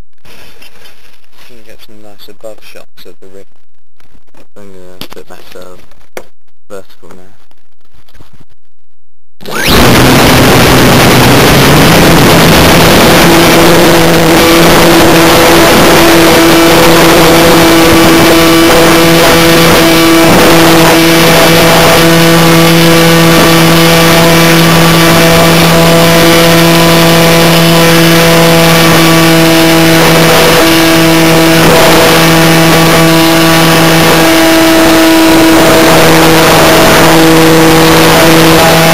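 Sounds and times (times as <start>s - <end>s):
model plane motor buzzing: 9.4s - 38.9s
wind rushing over microphone: 9.5s - 22.2s, 28.8s - 34.2s.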